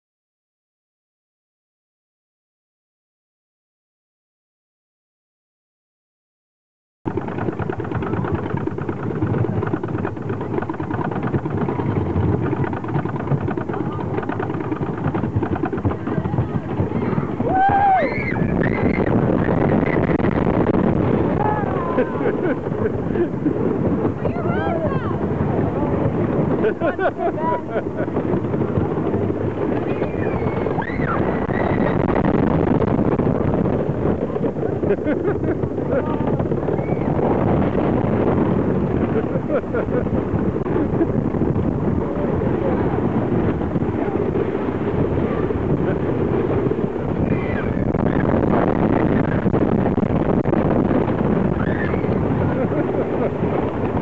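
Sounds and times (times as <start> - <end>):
roller coaster chain lift clattering: 7.1 - 54.0
wind buffeting microphone: 7.1 - 54.0
riders yelling: 16.2 - 19.1, 21.3 - 22.3.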